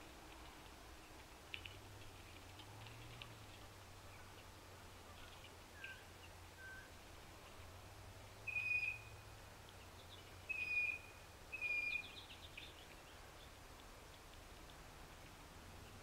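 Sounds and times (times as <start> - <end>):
bird whistling: 6.6 - 6.9, 8.5 - 9.1, 10.5 - 12.2
lower bird whistles: 8.5 - 9.1, 10.5 - 12.2.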